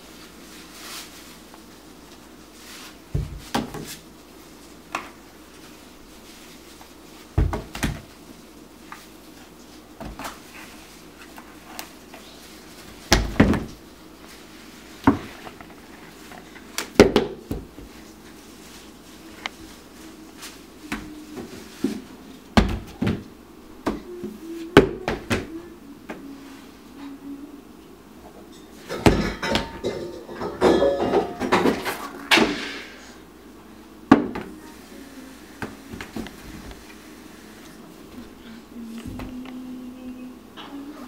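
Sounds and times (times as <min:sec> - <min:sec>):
books knocking on wooden shelf: 0:07.4 - 0:08.1, 0:13.1 - 0:13.7.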